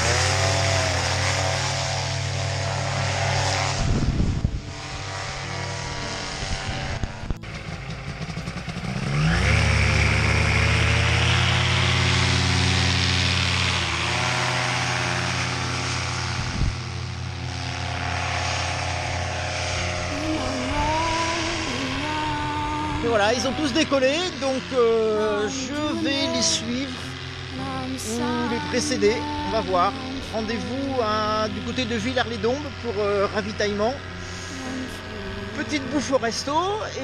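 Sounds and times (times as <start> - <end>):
paramotor engine revving: 0.0 - 37.0.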